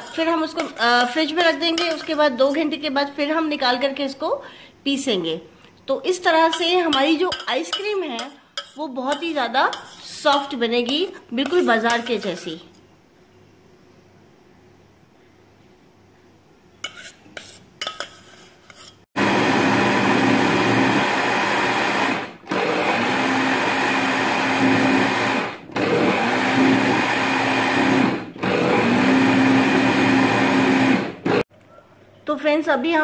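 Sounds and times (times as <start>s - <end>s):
mixer grinder running: 19.2s - 31.4s.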